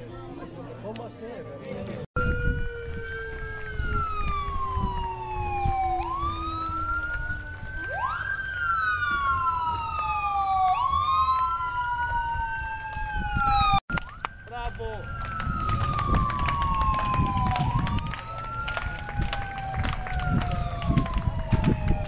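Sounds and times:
police sirens wailing: 0:02.1 - 0:22.0.

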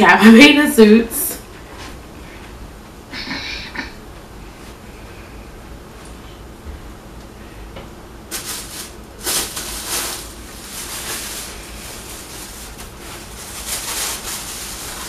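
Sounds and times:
cloth bag rustling: 0:08.3 - 0:15.0.

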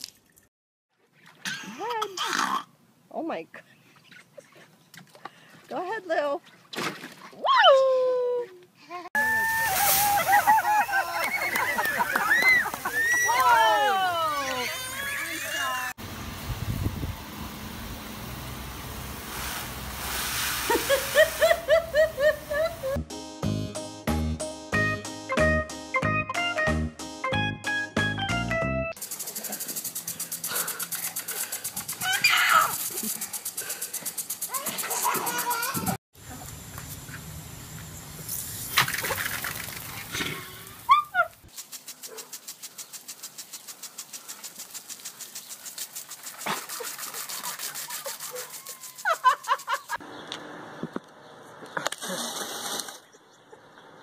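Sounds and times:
child laughing and squealing: 0:08.9 - 0:16.0, 0:31.9 - 0:33.2, 0:34.5 - 0:36.0, 0:40.4 - 0:41.4, 0:46.8 - 0:50.0
pressure washer spraying water: 0:09.4 - 0:13.3, 0:16.0 - 0:23.0, 0:29.0 - 0:35.8, 0:41.5 - 0:50.0
garden hose running onto concrete: 0:09.4 - 0:15.7, 0:29.0 - 0:35.9, 0:38.2 - 0:50.0
lawn sprinkler ticking rapidly: 0:29.0 - 0:35.9, 0:40.7 - 0:50.0.

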